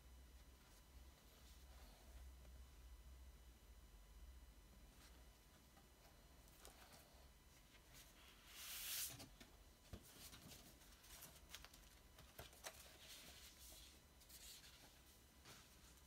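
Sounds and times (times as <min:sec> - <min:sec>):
paper and cardboard rustling: 0:06.6 - 0:16.0.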